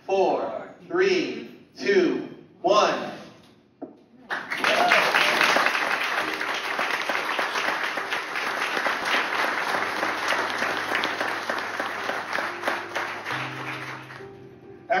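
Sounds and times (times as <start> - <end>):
audience applauding: 4.3 - 14.4.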